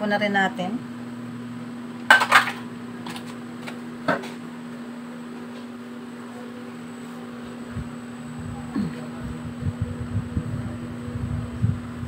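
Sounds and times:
low hum: 7.6s - 12.0s.

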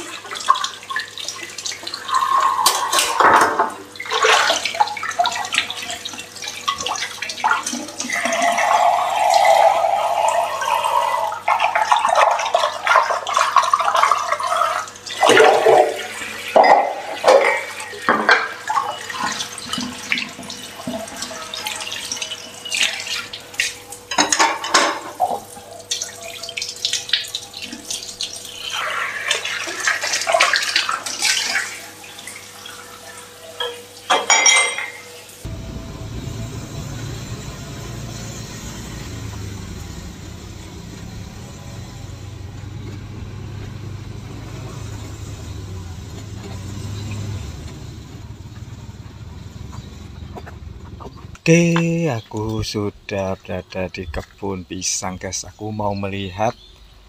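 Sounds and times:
tap water splashing on dishes: 0.0s - 9.7s, 10.6s - 35.2s
crockery clinking: 33.6s - 35.2s
steady low rumble: 35.5s - 51.5s.

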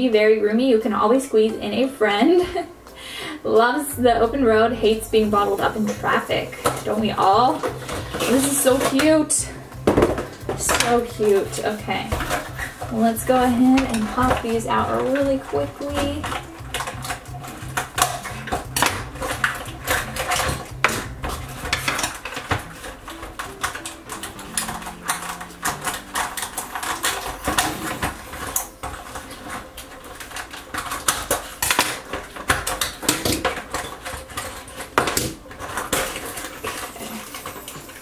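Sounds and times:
plastic packaging crackling: 1.8s - 38.0s.

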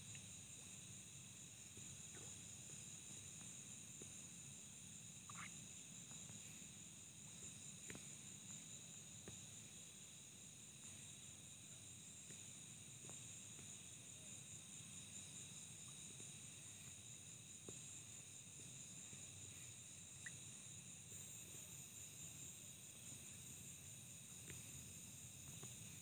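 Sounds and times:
night insects trilling: 0.0s - 26.0s.

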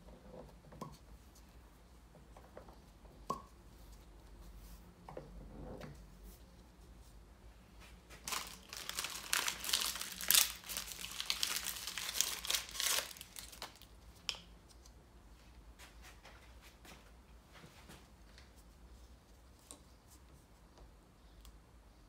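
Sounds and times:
paper towel crinkling and rustling: 8.1s - 13.9s.

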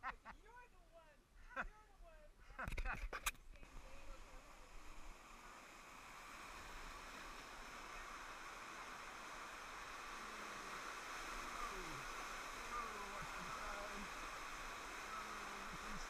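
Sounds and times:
rushing churning water: 3.7s - 16.0s.

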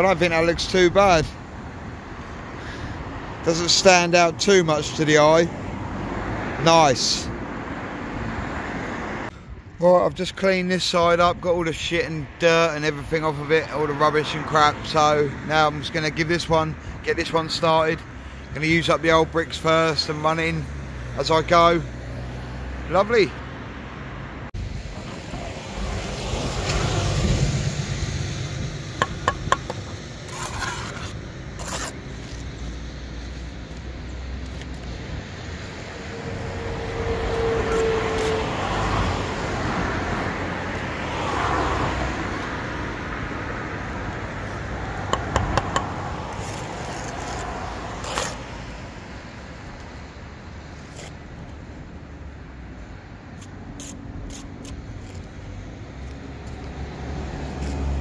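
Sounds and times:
road traffic passing: 0.0s - 58.0s
sharp metallic taps: 29.0s - 29.9s, 45.1s - 45.9s
trowel scraping mortar: 29.0s - 33.6s, 45.2s - 48.5s.

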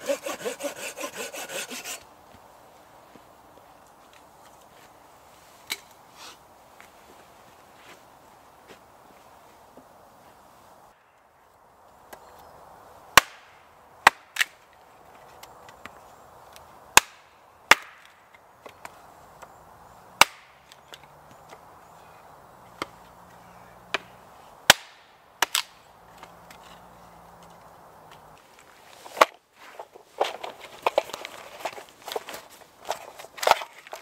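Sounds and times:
axe chopping wood: 13.2s - 14.5s, 17.0s - 18.1s, 20.2s - 20.6s, 23.9s - 25.7s.

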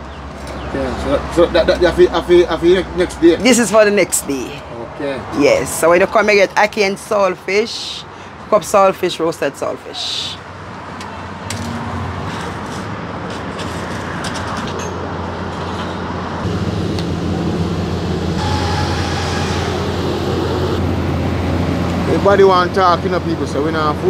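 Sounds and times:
passing vehicles and tyre noise: 0.0s - 24.0s
low engine hum: 16.4s - 24.0s.

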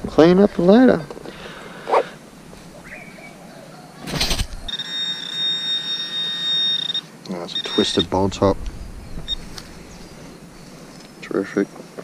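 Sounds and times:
metal detector tone: 4.7s - 8.2s.

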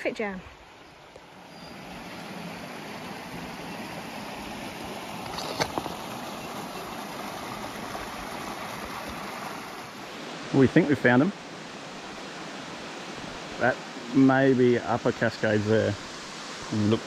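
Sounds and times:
water tumbling over rocks: 2.2s - 10.0s.

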